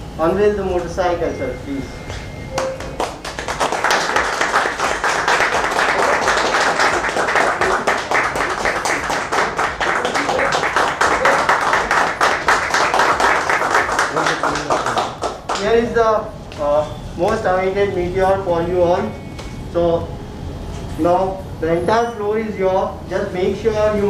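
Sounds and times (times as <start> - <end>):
people clapping: 2.1 - 15.9.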